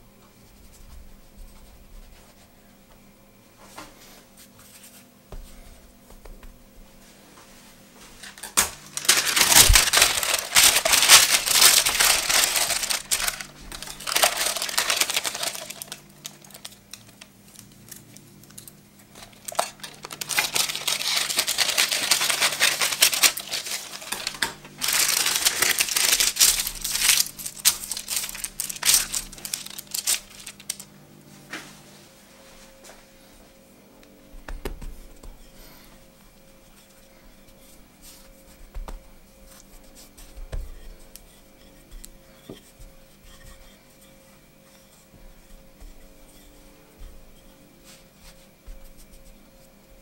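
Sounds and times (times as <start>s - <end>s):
parchment paper rustling: 8.1s - 30.9s, 34.6s - 49.8s.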